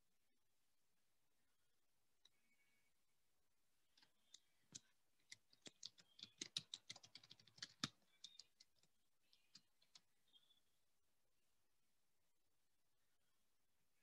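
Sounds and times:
keyboard typing: 0:03.9 - 0:10.5.

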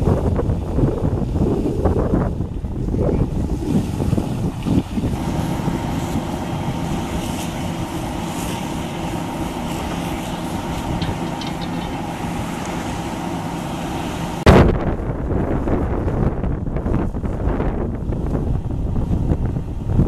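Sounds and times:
fire engine pump drone: 0:00.0 - 0:20.0
wind on microphone: 0:00.0 - 0:20.0
hose streams hissing: 0:03.7 - 0:14.4.

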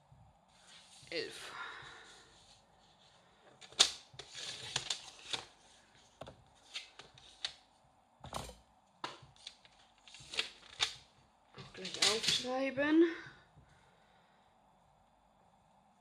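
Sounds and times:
paper rustling: 0:02.2 - 0:07.6, 0:09.3 - 0:11.0.

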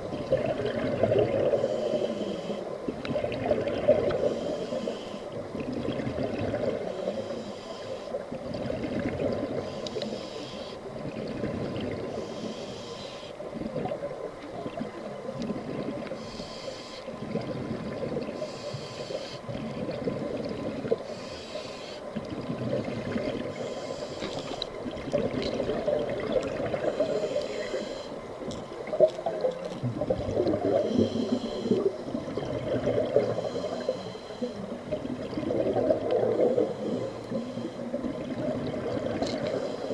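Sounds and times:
regulator inhale hiss: 0:01.4 - 0:02.8, 0:04.0 - 0:05.5, 0:06.8 - 0:08.4, 0:09.5 - 0:10.9, 0:12.1 - 0:13.5, 0:16.1 - 0:17.4, 0:18.3 - 0:19.6, 0:21.0 - 0:22.2, 0:23.5 - 0:24.8, 0:26.8 - 0:28.3, 0:30.6 - 0:32.2, 0:33.2 - 0:35.0, 0:36.4 - 0:38.2, 0:39.4 - 0:39.9
exhale bubbling rush: 0:28.9 - 0:39.9.

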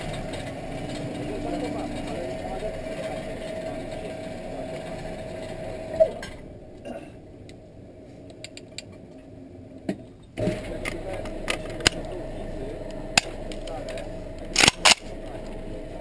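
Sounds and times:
steady hum: 0:00.0 - 0:16.0
metallic rifle clicks: 0:14.6 - 0:15.1.

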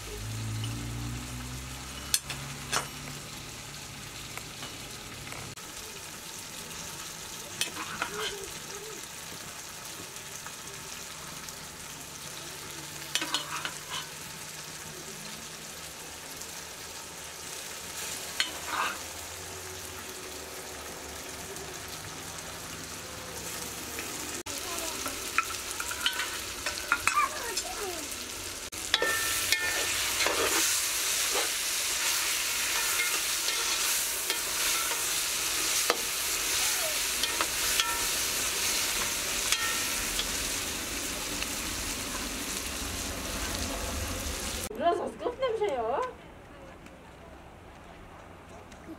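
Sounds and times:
meat sizzling in a metal pot: 0:00.0 - 0:44.7
spoon scraping and clinking on pot: 0:13.1 - 0:14.2, 0:25.4 - 0:27.2, 0:28.9 - 0:31.5, 0:32.6 - 0:35.1, 0:37.2 - 0:38.2, 0:39.0 - 0:40.3.

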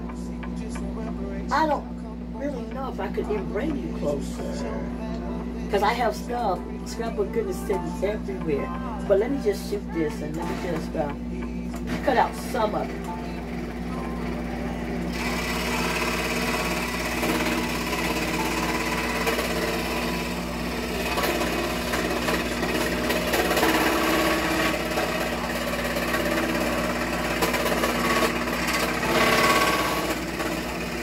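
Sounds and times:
scroll saw cutting wood: 0:15.1 - 0:31.0.

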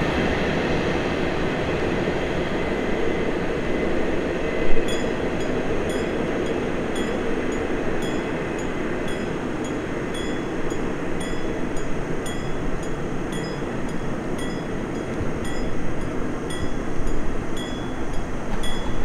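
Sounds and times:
train wheels rumbling: 0:00.0 - 0:19.0
high clinks from train wheels: 0:04.6 - 0:19.0.

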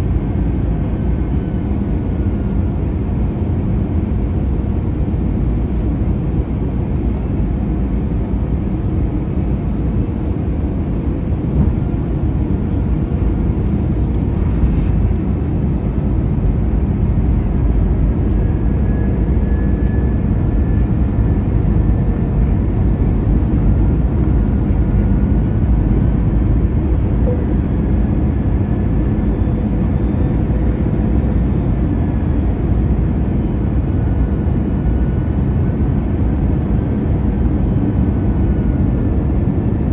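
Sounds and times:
aircraft engines and airflow rumble: 0:00.0 - 0:39.9
faint high whines: 0:09.0 - 0:39.9.

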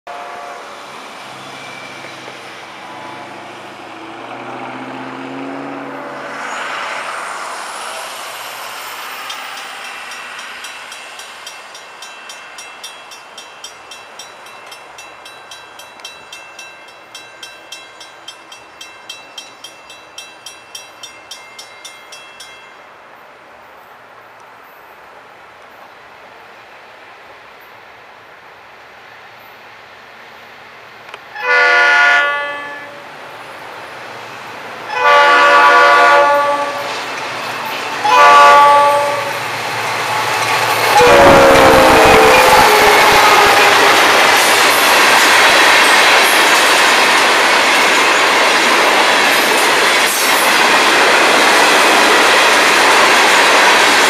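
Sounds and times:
distant freight train: 0:00.1 - 0:54.0
road vehicle passing: 0:00.4 - 0:10.9
crossing signal bell ringing: 0:08.5 - 0:22.9.

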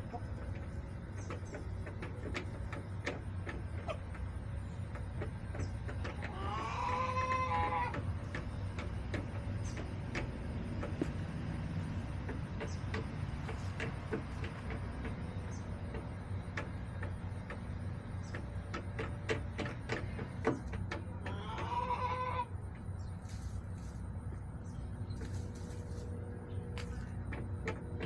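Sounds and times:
chickens pecking and scratching: 0:00.0 - 0:28.0
steady low rumble: 0:22.5 - 0:28.0.

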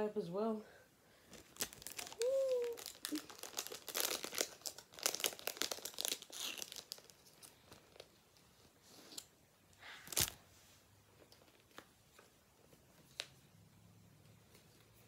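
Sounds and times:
plastic packaging crackling: 0:01.3 - 0:08.3, 0:10.0 - 0:10.4.

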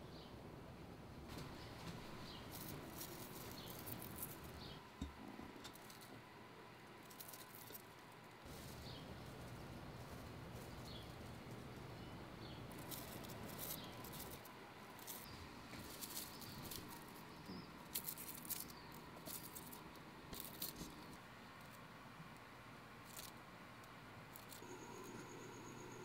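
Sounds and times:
faint steady hiss: 0:00.0 - 0:26.0
fingers rustling leaves: 0:01.3 - 0:04.8, 0:06.8 - 0:24.7.

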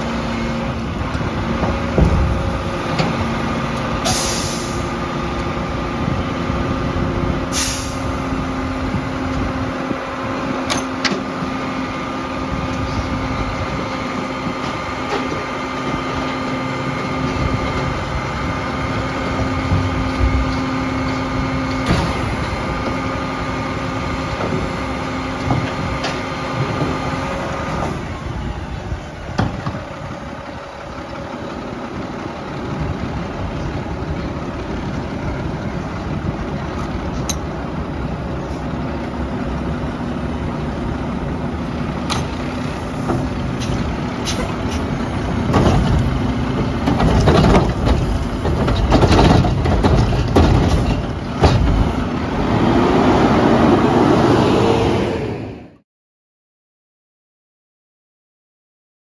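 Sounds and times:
garbage truck hydraulic whine: 0:00.2 - 0:05.0, 0:07.4 - 0:09.5
air brake hisses: 0:04.0 - 0:04.9, 0:07.5 - 0:08.1.

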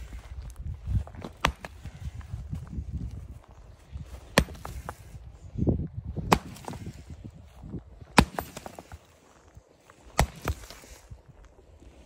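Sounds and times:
pickaxe striking cement: 0:04.4 - 0:04.9, 0:06.3 - 0:06.8, 0:08.2 - 0:08.8, 0:10.2 - 0:10.8.

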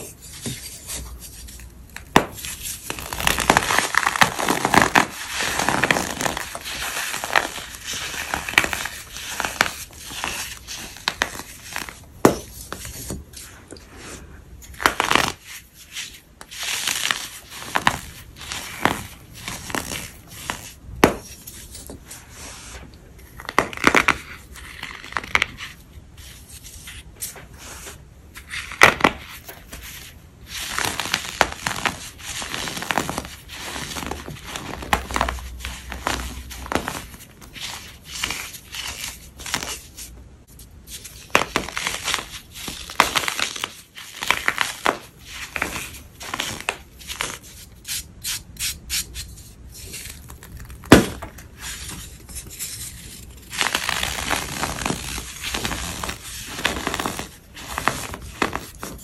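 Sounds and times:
chalky material crunching: 0:01.4 - 0:13.0, 0:28.5 - 0:40.1, 0:40.9 - 0:47.7, 0:48.9 - 0:59.0.

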